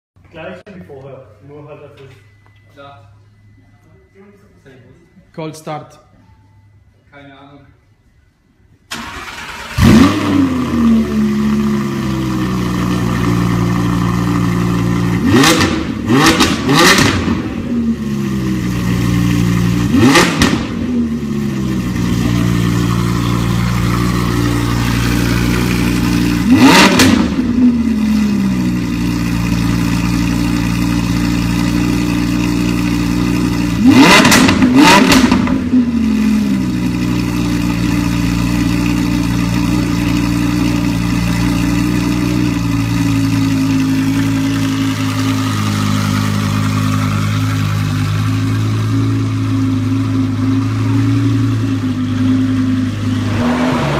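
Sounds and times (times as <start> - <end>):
engine revving: 8.9 - 47.2, 52.5 - 53.9
car engine idling: 8.9 - 53.9
car engine starting: 8.9 - 53.9.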